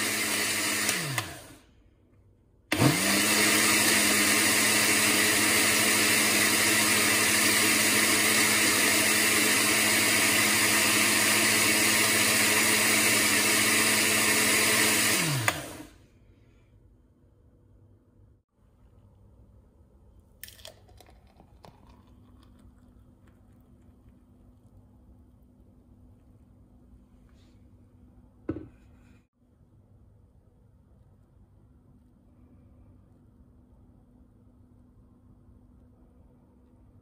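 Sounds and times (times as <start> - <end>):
blender motor running: 0.0 - 1.6, 2.7 - 16.0.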